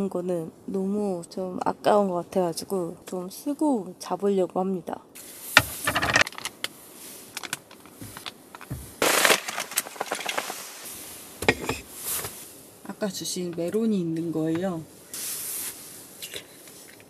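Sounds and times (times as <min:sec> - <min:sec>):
rustling: 0:05.2 - 0:12.7, 0:14.4 - 0:17.0
objects knocking on wooden table: 0:05.6 - 0:06.2.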